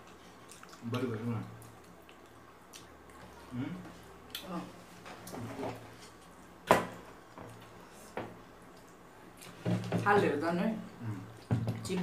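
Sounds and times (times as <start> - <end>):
eating with hands: 0.0 - 6.6.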